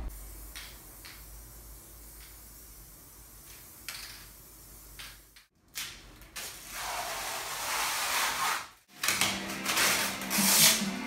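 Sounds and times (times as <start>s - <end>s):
spray paint can hissing: 0.1s - 5.5s
music: 8.9s - 11.0s.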